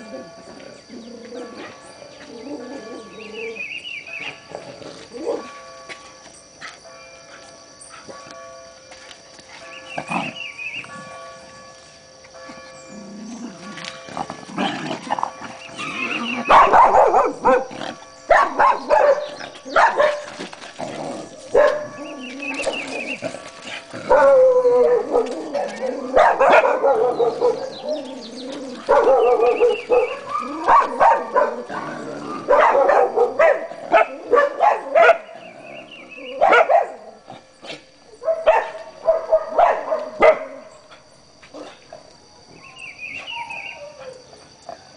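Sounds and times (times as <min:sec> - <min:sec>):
dog barking: 0:16.5 - 0:17.7, 0:18.3 - 0:20.3, 0:21.5 - 0:22.0, 0:26.2 - 0:27.7, 0:28.9 - 0:31.7, 0:32.5 - 0:35.3, 0:36.4 - 0:37.0, 0:38.2 - 0:40.6.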